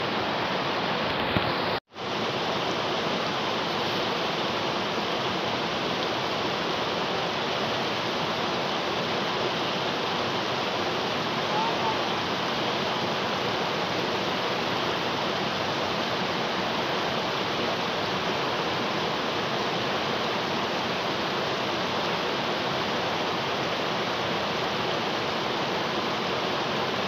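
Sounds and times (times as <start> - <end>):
river water rushing over rocks: 0.0 - 27.0.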